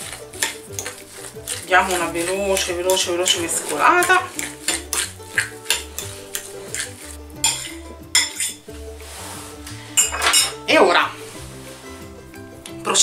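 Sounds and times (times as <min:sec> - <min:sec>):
utensil clinking and scraping bowl: 0:00.0 - 0:13.0.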